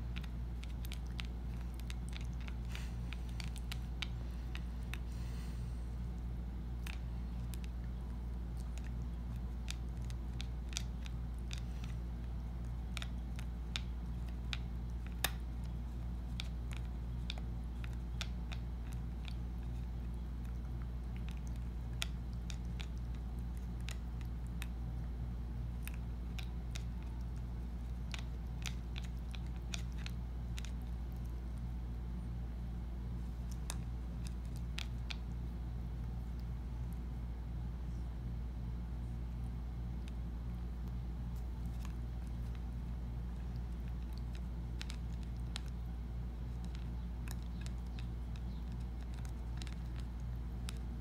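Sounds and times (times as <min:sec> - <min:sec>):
cat teeth clicking on wood: 0:00.0 - 0:05.4, 0:06.8 - 0:24.8, 0:25.7 - 0:31.5, 0:41.4 - 0:50.8
low hum: 0:00.0 - 0:51.0.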